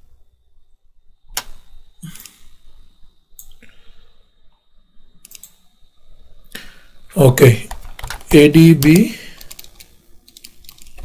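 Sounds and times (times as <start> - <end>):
computer mouse clicks: 3.4 - 3.6, 5.2 - 5.6, 8.8 - 11.0.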